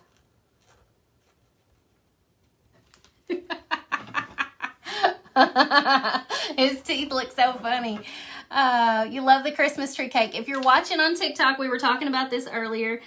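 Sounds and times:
woman laughing: 3.3s - 6.8s.

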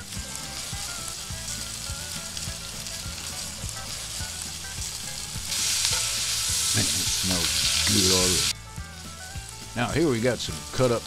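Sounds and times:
meat sizzling in a skillet: 0.0s - 11.0s.

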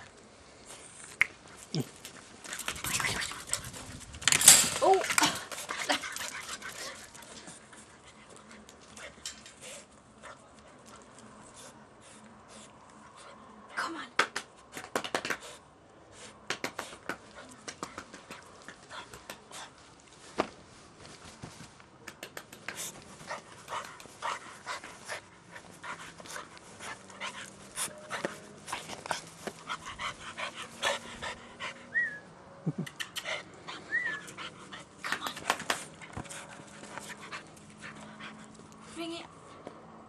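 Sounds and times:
puppy panting: 5.3s - 13.4s, 22.6s - 32.2s, 32.9s - 39.6s.

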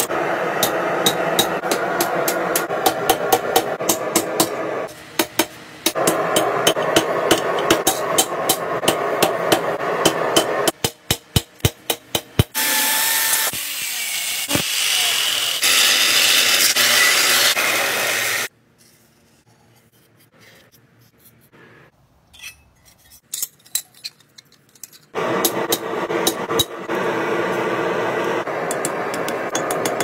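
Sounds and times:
hammer striking steel on anvil: 0.6s - 4.6s, 5.2s - 12.5s, 28.6s - 30.0s
power tool grinding steel: 12.6s - 18.5s.

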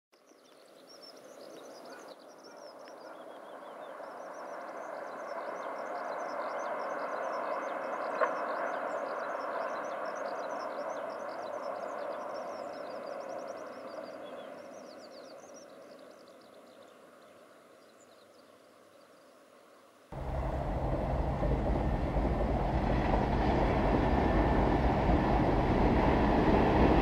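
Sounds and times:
small birds chirping: 0.2s - 19.4s
electric train running over bridge: 20.2s - 27.0s.

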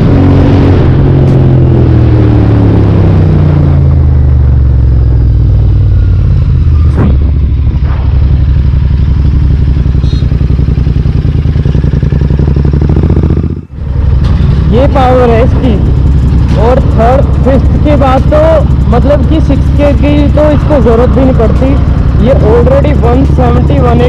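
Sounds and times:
motorcycle engine droning: 0.0s - 24.0s.

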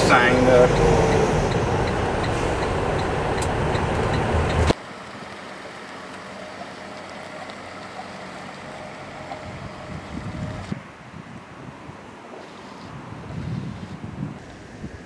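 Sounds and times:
truck engine and road noise: 0.0s - 15.0s
vehicle hum outdoors: 0.0s - 15.0s
light ticking: 0.6s - 4.8s.

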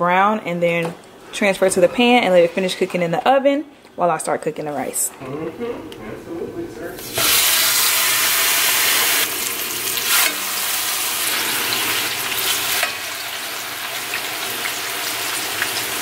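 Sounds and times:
chicken sizzling in oil: 7.1s - 16.0s.

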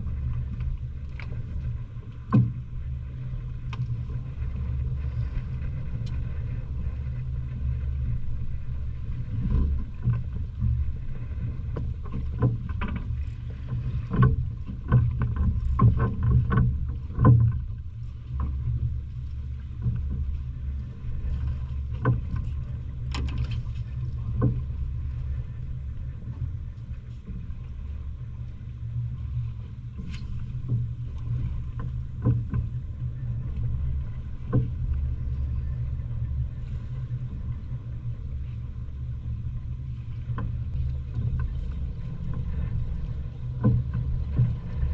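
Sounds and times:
boat engine humming: 0.0s - 44.9s.

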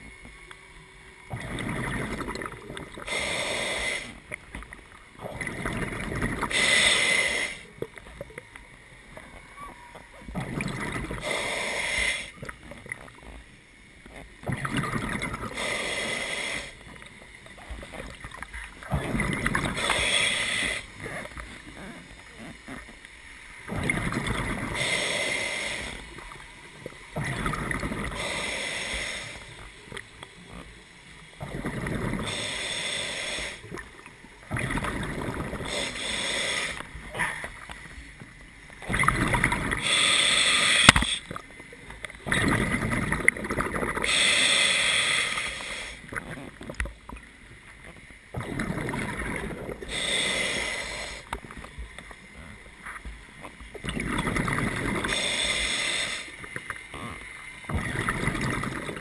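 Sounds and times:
diver exhaling bubbles underwater: 1.3s - 4.2s, 5.2s - 8.3s, 10.2s - 13.1s, 14.4s - 17.0s, 17.6s - 23.0s, 23.6s - 29.5s, 31.4s - 32.7s, 33.3s - 37.7s, 38.8s - 41.4s, 42.2s - 47.0s, 48.3s - 51.2s, 53.7s - 56.3s, 56.9s - 59.0s.

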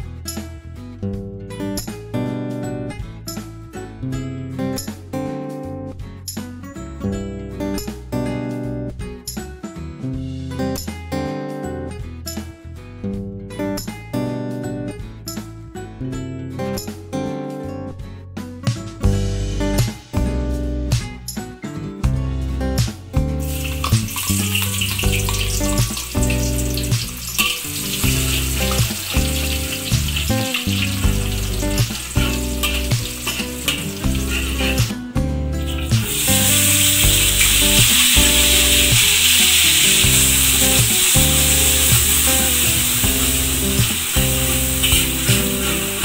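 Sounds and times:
background music: 0.0s - 46.0s
loud steady sizzle of paste frying: 23.4s - 35.0s, 35.6s - 46.0s
shallots sizzling in hot oil: 23.4s - 35.0s, 35.6s - 46.0s
metal spatula stirring in wok: 27.1s - 34.8s.

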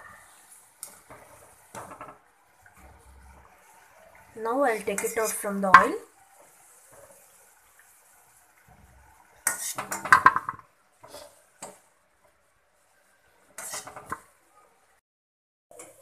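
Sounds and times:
oil sizzling: 0.0s - 15.0s
metal skimmer scraping a wok: 8.7s - 10.4s, 13.5s - 14.2s.

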